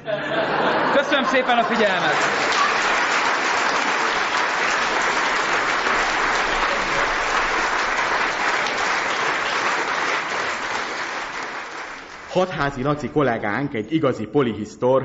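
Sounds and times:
audience applauding: 0:00.5 - 0:13.0.

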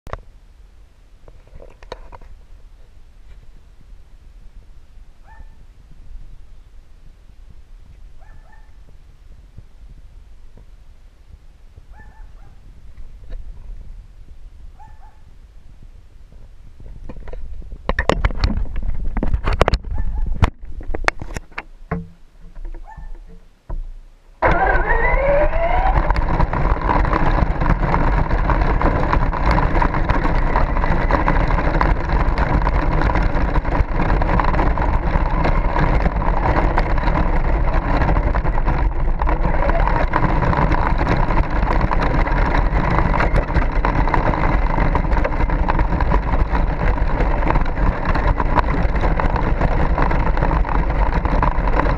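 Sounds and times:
sharp clicks and knocks: 0:16.8 - 0:51.9
tyres on road: 0:20.5 - 0:51.9
rc truck motor whining: 0:24.4 - 0:51.9.

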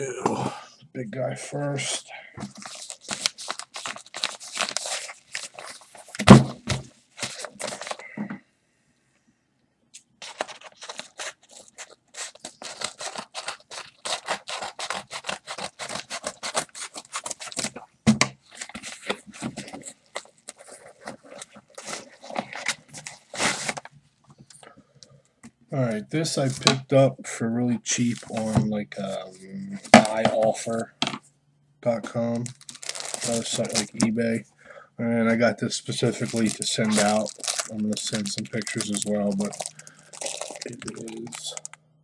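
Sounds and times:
package packaging tearing: 0:02.5 - 0:06.4, 0:07.2 - 0:08.0, 0:10.2 - 0:17.8, 0:18.4 - 0:23.9, 0:32.4 - 0:34.1, 0:36.0 - 0:41.8.

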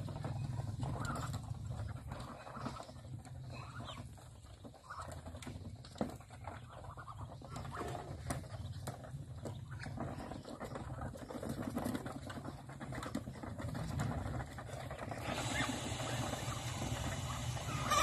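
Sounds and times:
low steady rumble: 0:00.0 - 0:05.0
ducks and chickens calling: 0:00.0 - 0:18.0.

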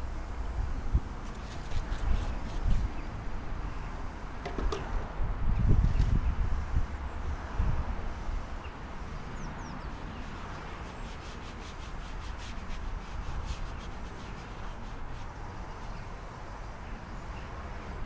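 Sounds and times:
hands scrubbing paint on canvas: 0:01.2 - 0:02.9, 0:09.8 - 0:16.0.

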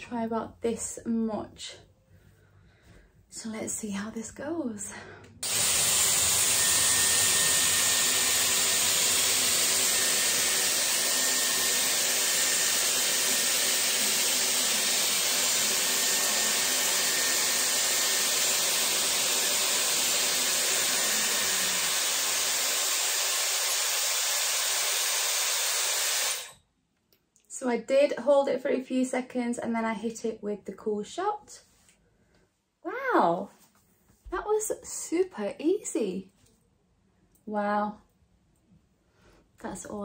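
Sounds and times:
hair styler air rush with whine: 0:05.4 - 0:26.6.

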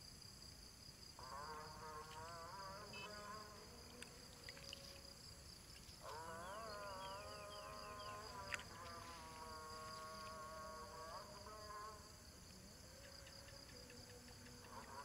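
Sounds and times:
insects trilling: 0:00.0 - 0:15.0
buzzing hum: 0:01.2 - 0:05.1, 0:06.0 - 0:12.7.

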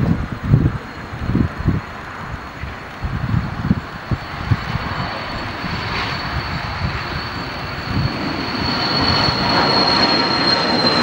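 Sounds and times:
jet taking off: 0:00.0 - 0:11.0.

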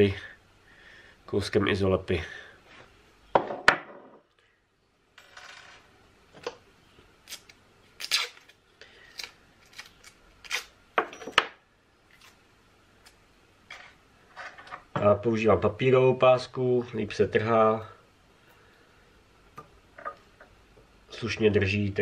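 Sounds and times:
masking tape pulled from roll: 0:07.2 - 0:10.7.

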